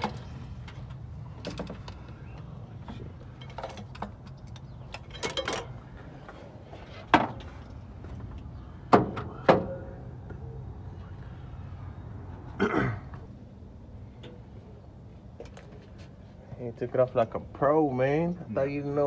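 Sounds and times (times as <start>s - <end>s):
metallic rattles and clicks: 3.2s - 5.8s.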